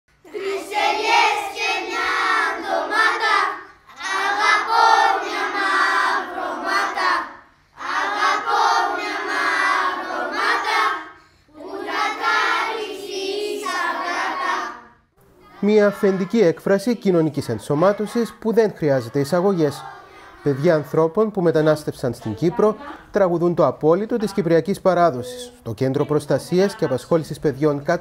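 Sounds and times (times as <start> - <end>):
children singing: 0.3 - 14.9.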